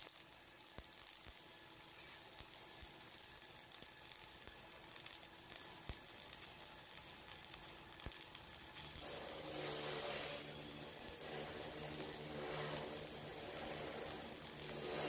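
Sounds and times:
sharp pops of spatter: 0.0s - 8.9s
welding arc sizzling: 0.0s - 15.0s
steady hum: 2.0s - 15.0s.

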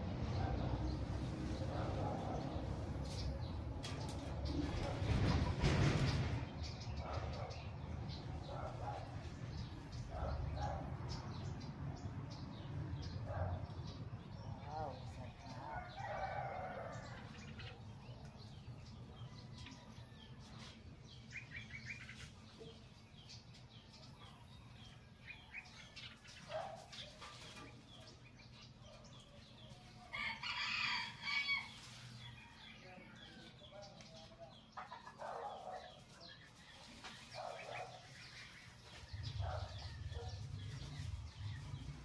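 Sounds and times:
birds chirping: 0.0s - 42.0s
chickens clucking: 19.0s - 42.0s
rooster crowing: 30.1s - 33.1s.

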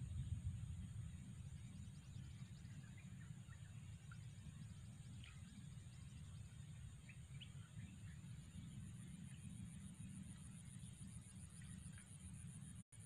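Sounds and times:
low rumble: 0.0s - 12.8s.

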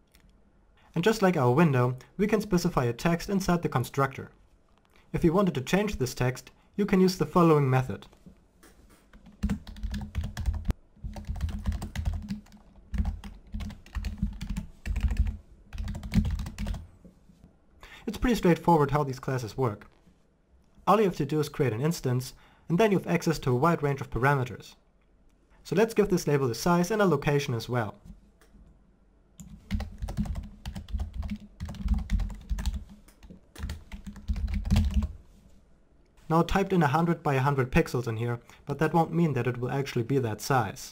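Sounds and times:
keyboard typing: 9.1s - 16.8s, 29.4s - 35.1s.

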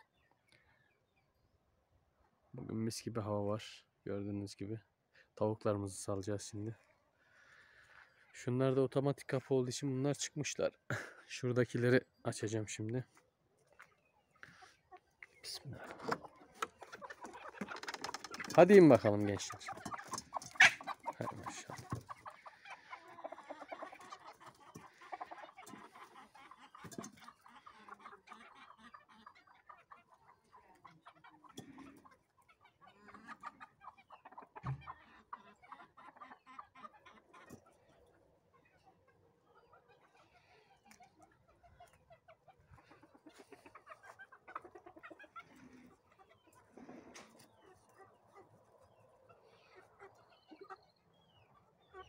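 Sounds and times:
chickens clucking: 0.0s - 52.0s.

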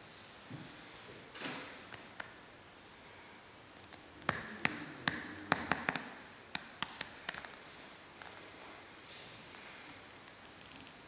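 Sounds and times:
sharp taps and clicks: 3.8s - 7.6s.

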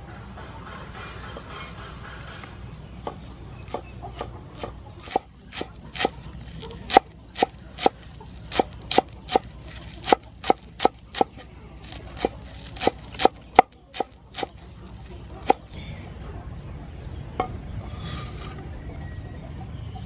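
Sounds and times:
cleaver chopping on wooden board: 3.0s - 6.2s, 6.8s - 14.6s, 15.4s - 15.7s.

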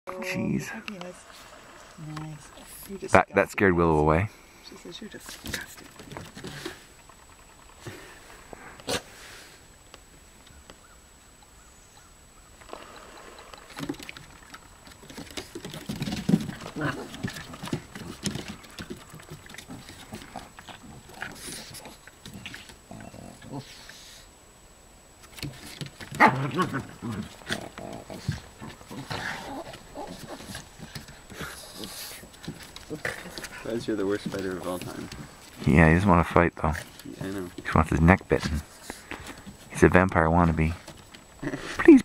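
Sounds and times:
dogs growling: 12.7s - 24.2s, 25.6s - 35.6s.

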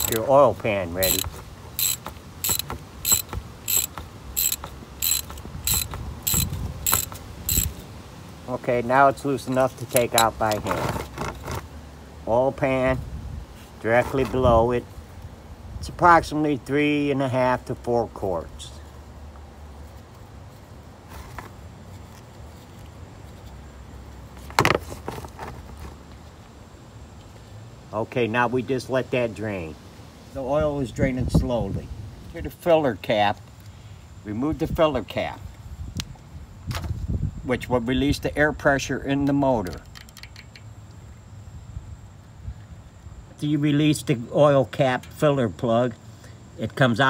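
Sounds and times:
socket ratchet clicking: 0.0s - 0.3s, 1.0s - 7.8s, 39.6s - 40.7s
sharp clatter: 1.0s - 7.8s.

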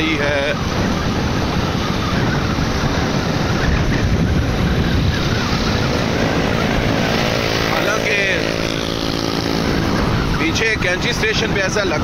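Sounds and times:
engine noise: 0.0s - 12.0s
road noise on wet road: 0.0s - 12.0s
wind rushing over microphone: 0.0s - 12.0s.

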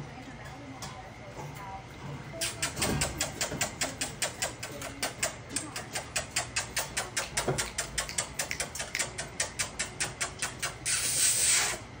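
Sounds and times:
puppies licking steel food bowls: 2.4s - 10.9s.

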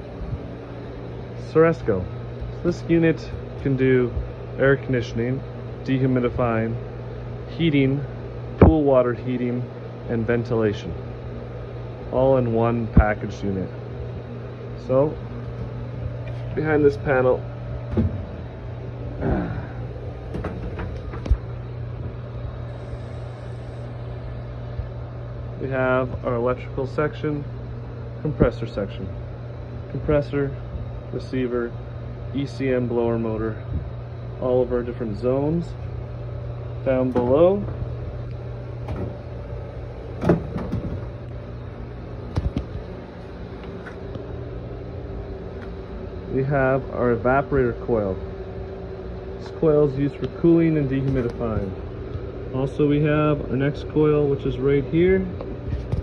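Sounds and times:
low machinery hum: 0.0s - 56.0s
panel clacks and knocks: 20.3s - 21.4s, 38.8s - 39.2s, 40.2s - 41.1s.

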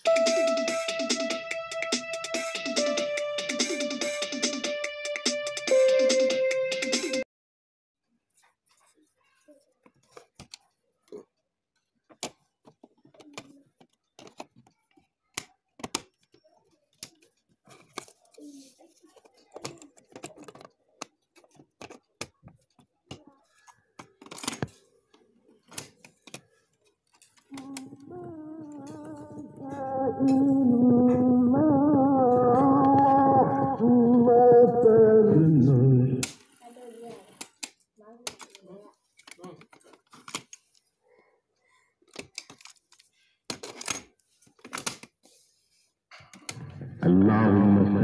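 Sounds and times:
recorded voice chanting: 27.5s - 36.4s, 46.5s - 48.0s.

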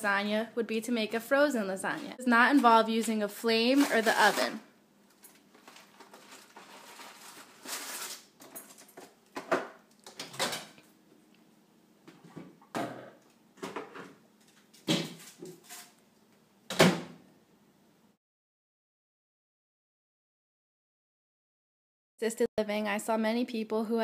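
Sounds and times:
packaging handling clatter: 5.1s - 9.2s.

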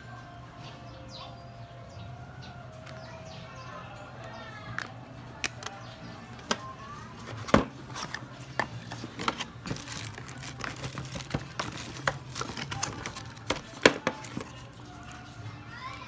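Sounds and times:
plastic packaging crinkling: 7.2s - 15.4s.

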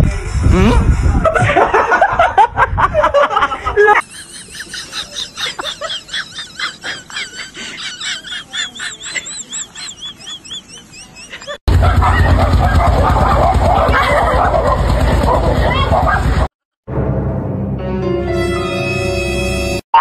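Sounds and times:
high chirping: 4.0s - 11.6s.

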